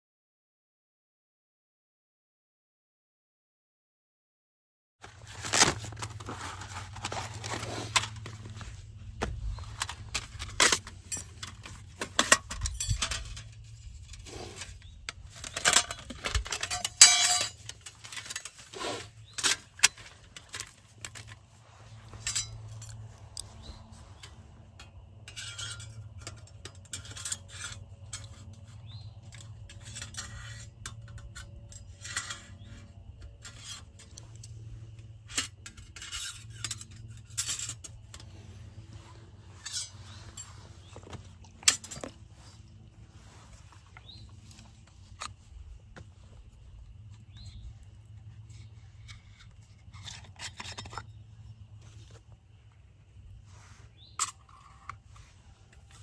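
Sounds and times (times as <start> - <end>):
food packaging crinkling: 5.0 - 8.8
camp gear clinking and knocking: 5.0 - 56.0.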